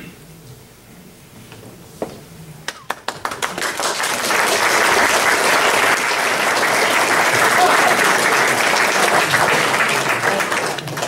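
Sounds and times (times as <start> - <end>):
audience applause: 2.7 - 11.0.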